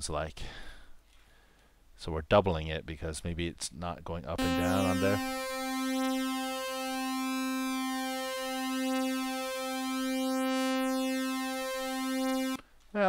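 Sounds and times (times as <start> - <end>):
synth tone with phasing beat: 4.4 - 12.6.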